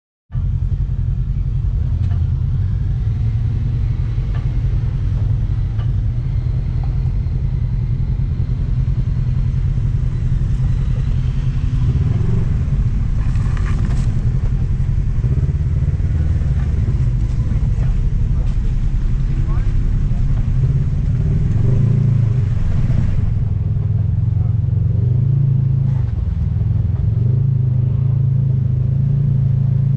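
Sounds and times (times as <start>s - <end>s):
utility vehicle engine rumble: 0.3s - 29.9s
knocks and clatter: 4.0s - 7.4s.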